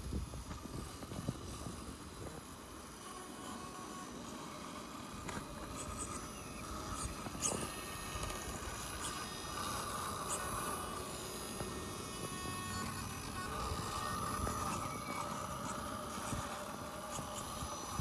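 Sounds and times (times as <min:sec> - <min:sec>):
rc car motor whining: 0:00.0 - 0:18.0
wheels clicking and knocking on rock: 0:05.2 - 0:18.0.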